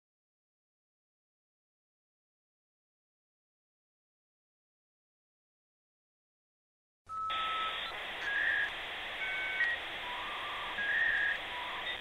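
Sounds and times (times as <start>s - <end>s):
short electronic beeps: 7.1s - 12.0s
steady hiss: 7.3s - 12.0s.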